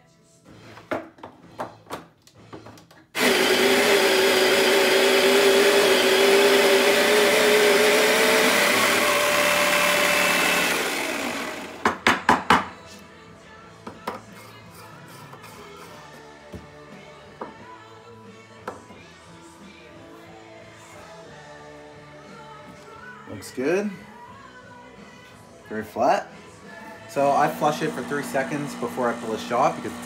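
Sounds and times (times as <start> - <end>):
coffee grinder whine: 3.2 - 12.1, 27.0 - 30.0.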